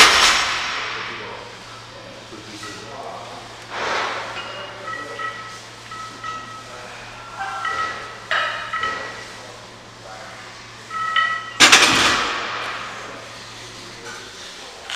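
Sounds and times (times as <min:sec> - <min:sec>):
loaded barbell crashing: 0:00.0 - 0:01.3, 0:11.6 - 0:13.0.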